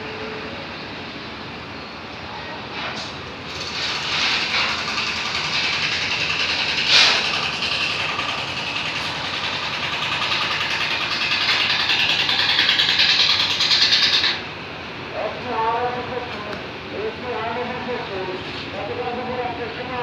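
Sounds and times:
motorboat engine throbbing: 3.4s - 14.6s.

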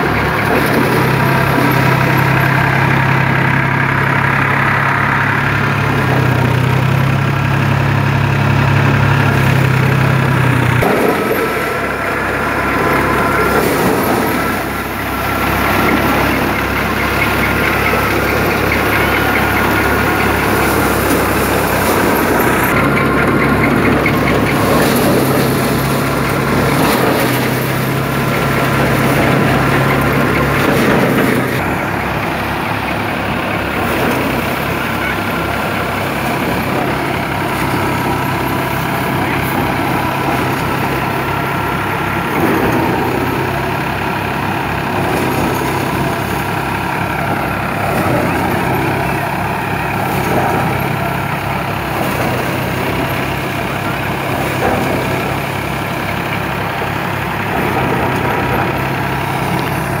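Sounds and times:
paddy thresher running: 0.0s - 60.0s
tractor diesel engine under load: 0.0s - 60.0s.

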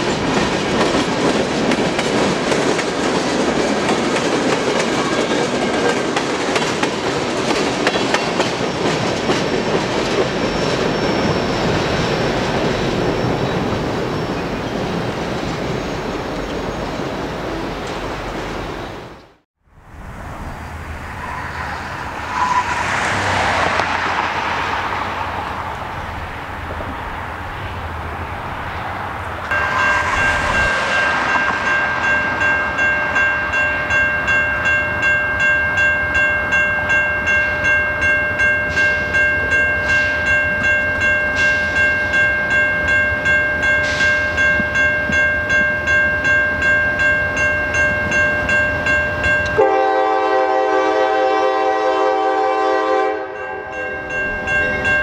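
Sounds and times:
railroad crossing bell ringing: 0.0s - 16.6s, 29.5s - 51.6s, 52.2s - 55.0s
rushing noise: 9.4s - 34.6s
locomotive horn chord: 29.5s - 33.3s, 49.5s - 53.7s.

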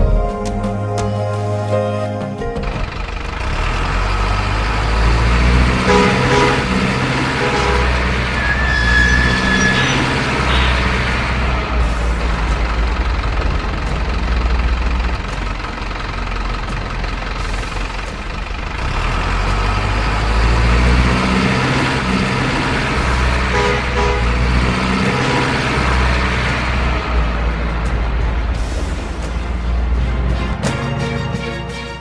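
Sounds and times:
truck engine droning: 0.0s - 32.0s
short horn toots: 5.8s - 11.0s, 23.5s - 24.4s.

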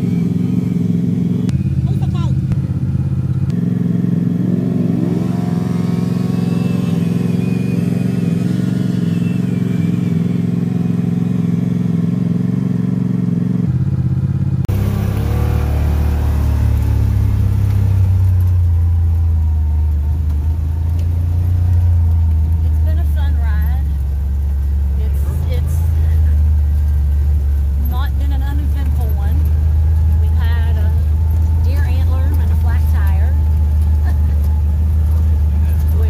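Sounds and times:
engine drone inside vehicle: 0.0s - 36.0s
engine idling: 0.0s - 36.0s
engine revving: 0.0s - 36.0s.

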